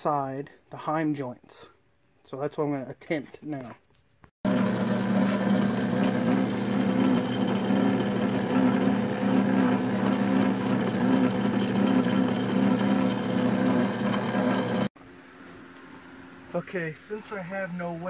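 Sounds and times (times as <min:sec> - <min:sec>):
metal lathe whirring: 0:04.5 - 0:14.9.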